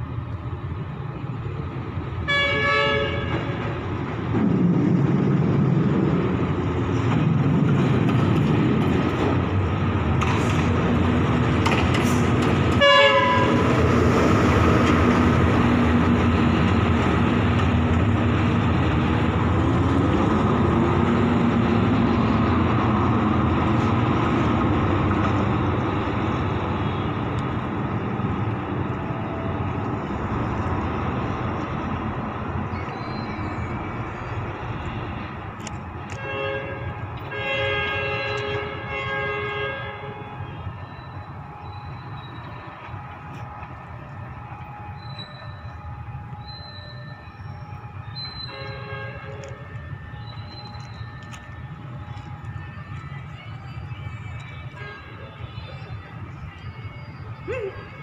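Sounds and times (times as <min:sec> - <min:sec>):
locomotive horn: 0:02.2 - 0:04.0, 0:12.0 - 0:17.7, 0:34.6 - 0:53.8, 0:54.4 - 0:55.9
diesel engine running loud: 0:03.6 - 0:36.1.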